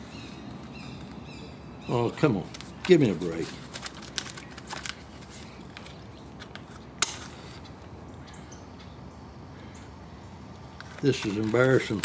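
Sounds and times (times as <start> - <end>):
paper rustling and clicks: 2.5 - 7.2, 10.8 - 12.0.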